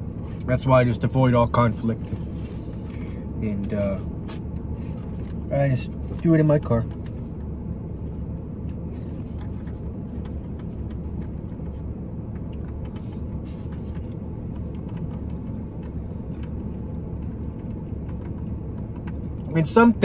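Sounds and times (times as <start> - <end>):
car engine idling: 0.0 - 20.0
faint eating clicks and taps: 9.4 - 13.0, 13.7 - 19.5.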